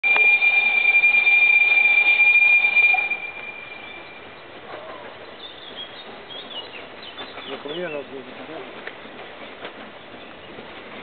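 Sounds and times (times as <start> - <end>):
steam locomotive whistle: 0.0 - 4.4.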